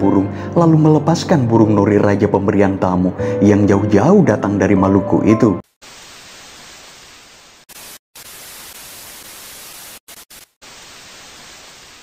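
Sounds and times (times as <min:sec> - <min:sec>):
static hiss glitch: 0:05.7 - 0:12.0.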